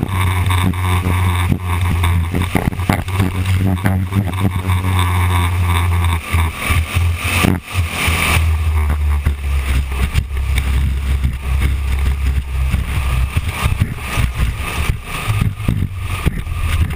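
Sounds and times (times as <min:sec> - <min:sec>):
race car engine droning: 0:00.0 - 0:16.9
wind buffeting microphone: 0:00.0 - 0:16.9.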